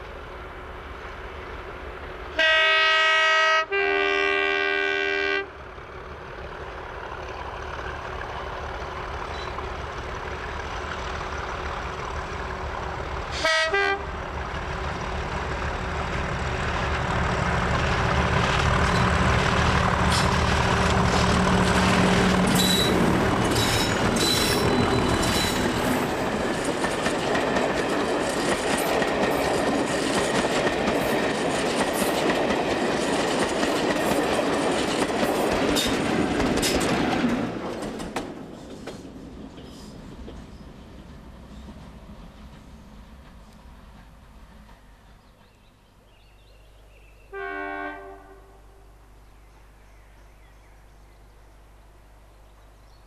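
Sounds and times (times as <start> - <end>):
diesel locomotive engine: 0.0 - 52.9
train horn blast: 2.3 - 5.6, 13.3 - 14.2, 47.3 - 49.0
wheels clicking over rail joints: 18.4 - 45.5.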